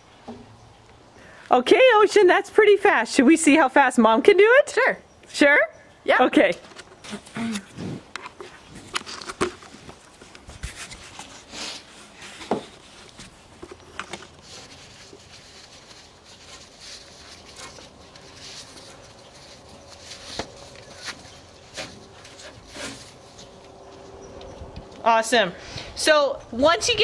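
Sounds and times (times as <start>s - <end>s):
rope rustling and scuffing: 6.8s - 24.1s.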